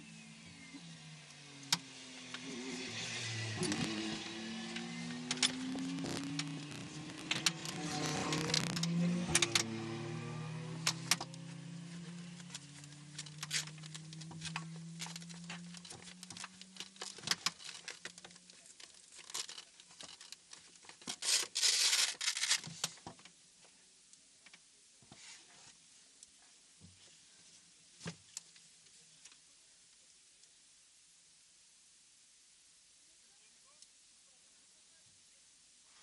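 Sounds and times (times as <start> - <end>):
low hum: 0.0 - 17.1
dense rasping burst: 1.6 - 15.6
rustling and scraping in cockpit: 2.4 - 9.7, 11.0 - 23.1.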